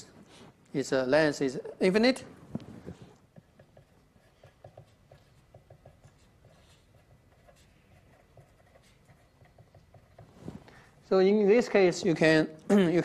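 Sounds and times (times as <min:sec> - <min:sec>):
pen scratching on paper: 0:03.4 - 0:10.4.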